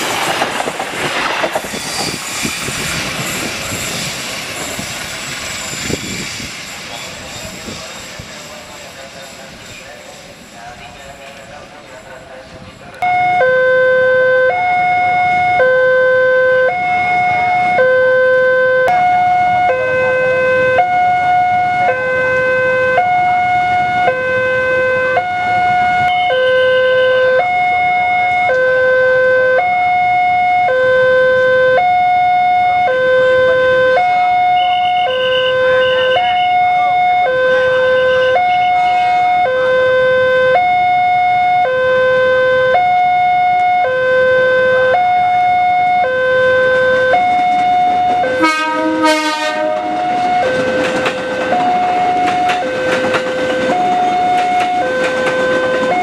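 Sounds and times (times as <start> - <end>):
level crossing two-tone alarm: 13.0 - 48.5, 49.1 - 56.0.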